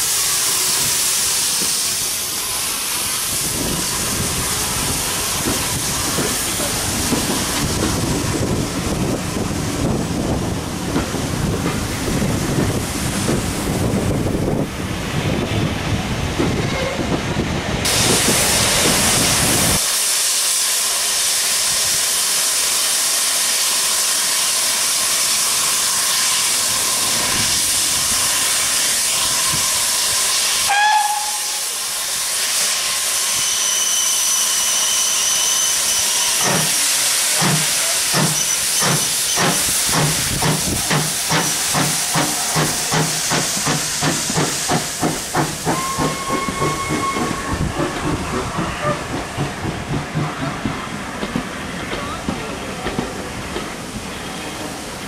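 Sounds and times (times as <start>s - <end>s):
steam locomotive blowing off steam: 0.0s - 17.1s, 17.8s - 55.0s
steam locomotive exhaust beats: 0.0s - 55.0s.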